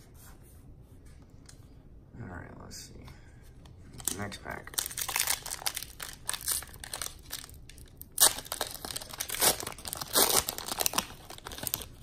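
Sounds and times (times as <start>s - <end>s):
card pack wrapper tearing: 4.0s - 12.0s.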